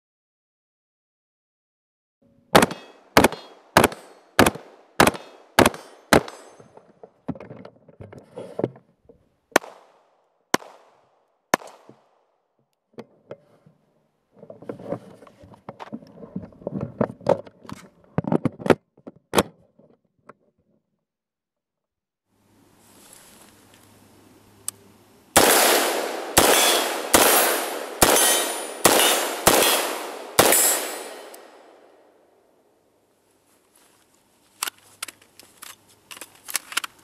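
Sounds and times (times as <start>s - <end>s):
rifle shots: 2.5s - 6.6s, 9.6s - 12.0s, 25.4s - 32.0s.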